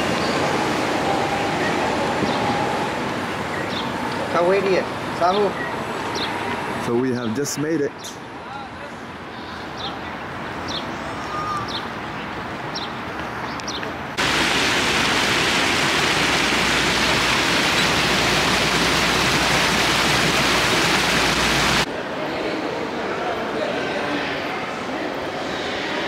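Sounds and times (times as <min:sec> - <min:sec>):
fountain jets splashing into pool: 0:14.2 - 0:21.9.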